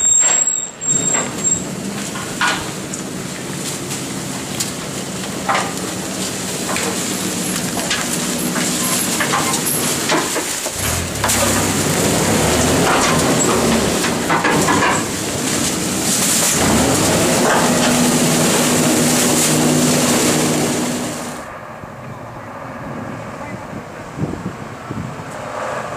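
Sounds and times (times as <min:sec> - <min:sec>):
garbage truck diesel engine: 0:00.0 - 0:21.5
rubbish bags knocking and crunching: 0:01.9 - 0:21.4.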